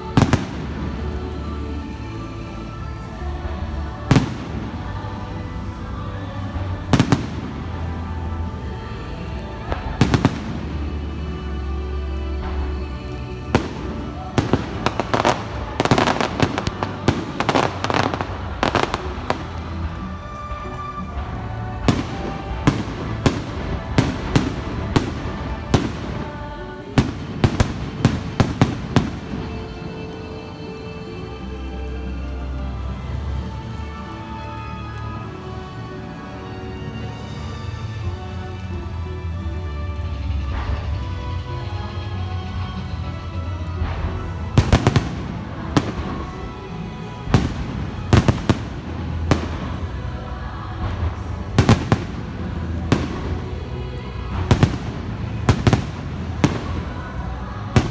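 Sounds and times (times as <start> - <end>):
music playing: 0.0 - 57.9
firework bangs: 13.5 - 20.9, 21.8 - 29.8, 43.8 - 50.2, 50.8 - 57.9.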